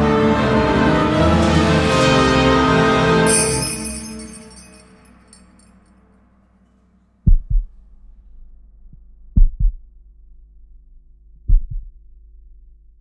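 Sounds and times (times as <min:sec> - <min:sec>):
faint low drone: 0:00.0 - 0:13.0
heartbeat thumps: 0:07.2 - 0:07.8, 0:08.9 - 0:09.9, 0:11.4 - 0:12.0.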